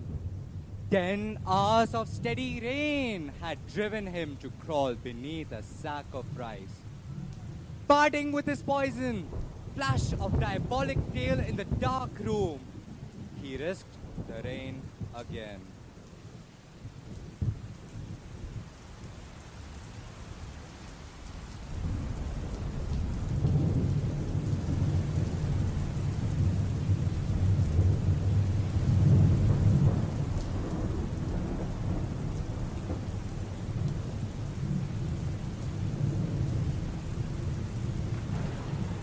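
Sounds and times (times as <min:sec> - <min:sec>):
low rolling thunder: 0:00.0 - 0:19.5, 0:21.3 - 0:39.0
rain: 0:00.0 - 0:39.0.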